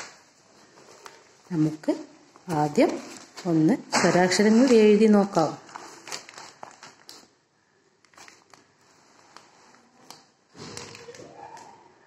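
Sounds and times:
paper rustling: 0.0s - 7.4s, 8.0s - 12.0s.

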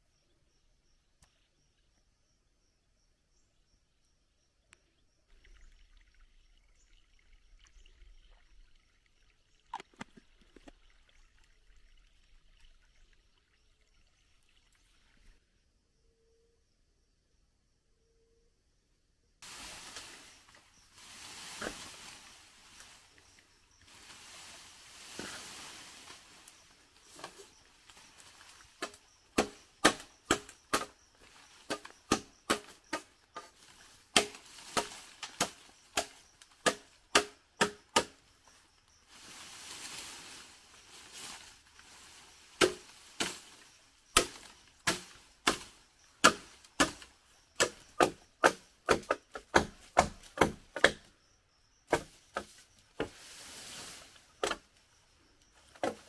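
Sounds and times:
machete chopping bamboo: 28.2s - 38.2s, 42.6s - 43.6s, 44.2s - 51.1s, 51.9s - 53.1s.

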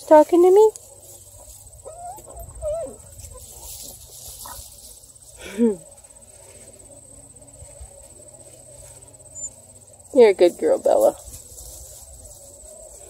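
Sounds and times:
high insect trill: 0.0s - 13.0s
puppy yelp: 1.8s - 3.4s.

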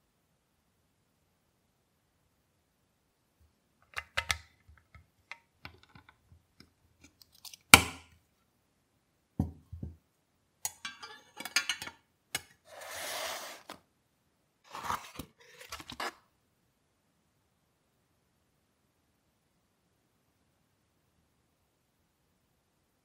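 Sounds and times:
knock on table: 9.4s - 10.0s
sliding scrape: 12.6s - 13.8s, 14.7s - 16.2s.

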